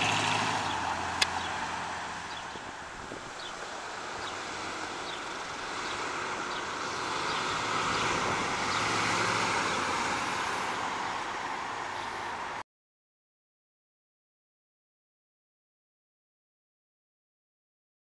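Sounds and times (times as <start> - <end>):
car engine driving past: 0.0 - 12.6.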